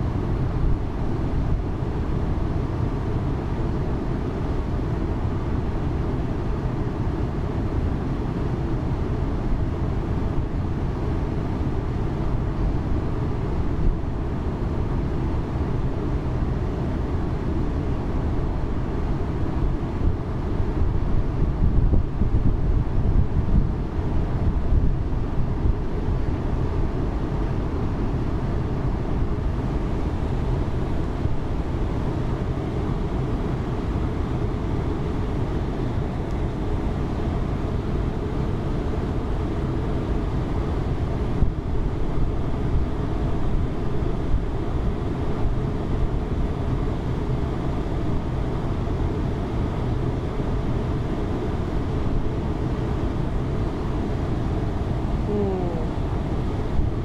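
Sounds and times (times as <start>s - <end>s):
wind on microphone: 21.1s - 25.8s
ship engine rumble: 54.7s - 56.7s.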